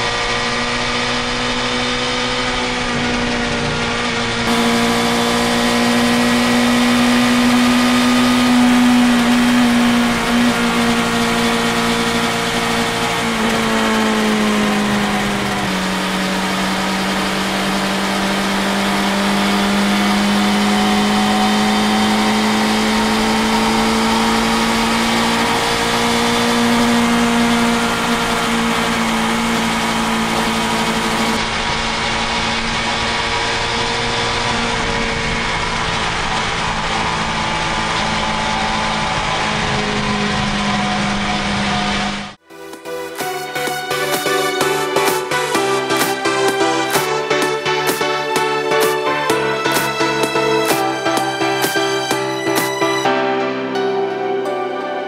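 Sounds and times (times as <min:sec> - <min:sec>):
motorcycle engine droning in tunnel: 0:00.0 - 0:42.9.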